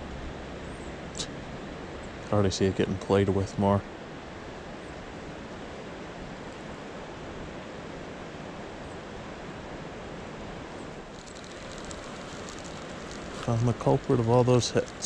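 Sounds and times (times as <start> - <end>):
creek water flowing: 11.0 - 15.0.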